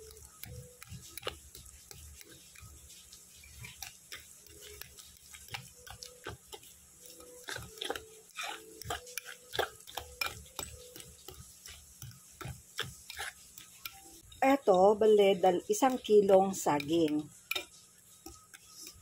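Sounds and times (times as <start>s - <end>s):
fork mashing bananas: 0.0s - 19.0s
fork clinking against glass bowl: 3.4s - 14.2s, 16.8s - 19.0s.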